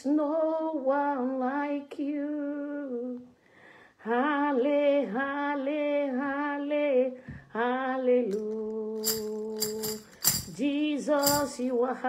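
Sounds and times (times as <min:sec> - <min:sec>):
woman singing unaccompanied: 0:00.0 - 0:03.4, 0:04.0 - 0:12.0
tambourine jingling: 0:08.3 - 0:11.7.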